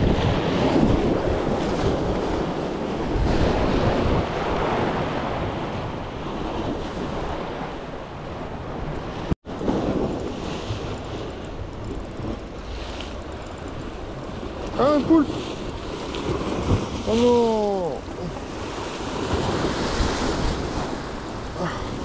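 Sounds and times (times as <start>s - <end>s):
wind buffeting microphone: 0.0s - 17.2s, 17.9s - 22.0s
waves washing against rocks: 12.4s - 22.0s.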